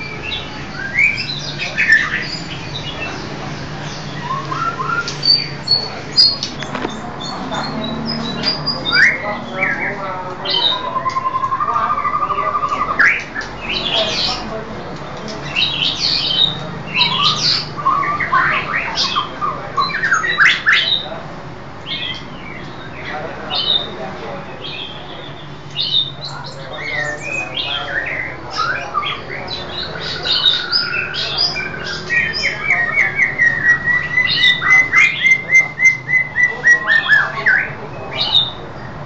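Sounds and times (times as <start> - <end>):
bird singing whistles and squawks: 0.0 - 3.2, 3.9 - 14.4, 24.8 - 38.6.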